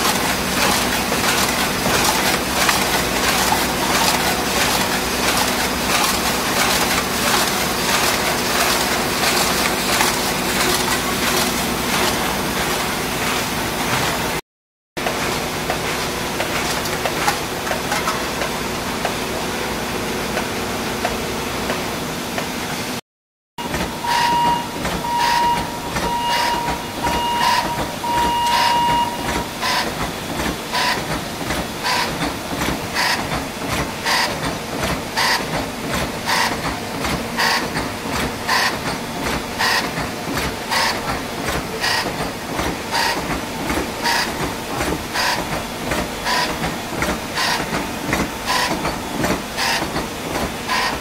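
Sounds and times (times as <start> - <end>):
conveyor machinery hum: 0.0 - 14.4, 15.0 - 23.0, 23.6 - 51.0
machine clacking: 0.0 - 14.4, 23.6 - 51.0
pulsed beeping tone: 24.0 - 29.4.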